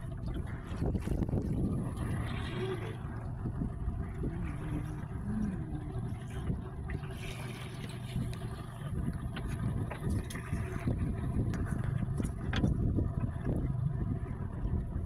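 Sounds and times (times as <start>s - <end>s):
boat engine rumble: 0.0s - 15.0s
water noise: 0.0s - 15.0s
wind: 0.0s - 15.0s.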